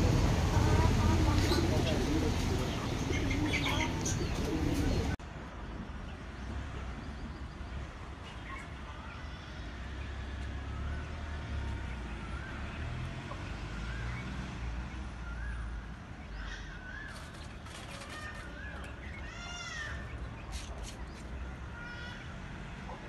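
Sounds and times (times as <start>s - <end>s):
chickens peeping: 0.0s - 5.2s
steady low rumble: 0.0s - 5.9s.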